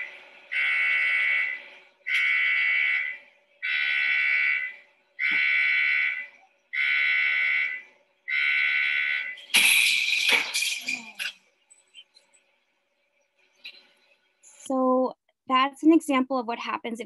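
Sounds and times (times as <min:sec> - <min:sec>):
electronic alarm long beeps: 0:00.0 - 0:09.5.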